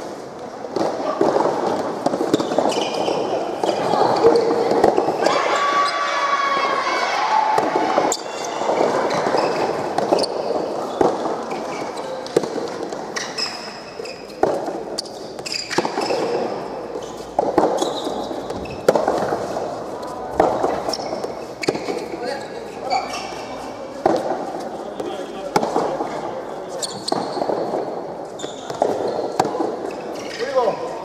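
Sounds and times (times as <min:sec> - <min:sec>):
rackets striking ball: 0:00.0 - 0:05.6, 0:07.4 - 0:30.8
people shouting: 0:03.8 - 0:09.4.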